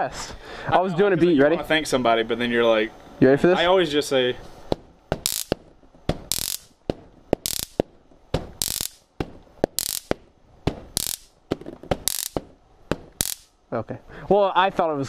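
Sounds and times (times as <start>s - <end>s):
stun gun crackling zaps: 5.2s - 5.6s, 6.2s - 6.8s, 7.4s - 10.2s, 10.9s - 11.4s, 12.0s - 12.5s, 13.1s - 13.6s
small clicks: 5.3s - 5.6s, 6.3s - 6.7s, 7.4s - 7.8s, 8.6s - 9.0s, 9.8s - 10.2s, 11.0s - 11.3s, 12.1s - 12.4s, 13.2s - 13.5s.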